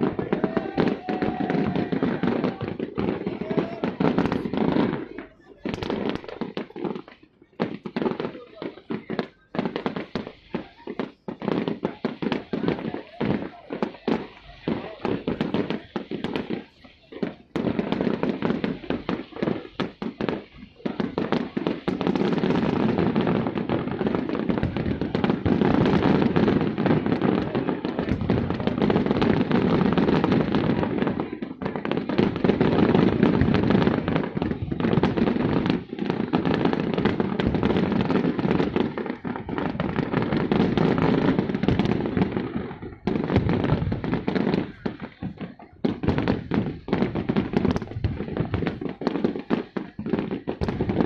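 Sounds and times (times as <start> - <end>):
fireworks booming and crackling: 0.0 - 51.0.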